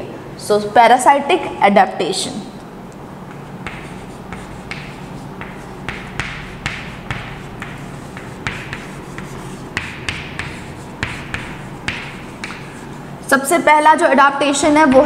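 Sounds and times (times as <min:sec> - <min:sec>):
chalk scratching on chalkboard: 0:03.2 - 0:13.3, 0:14.5 - 0:15.0.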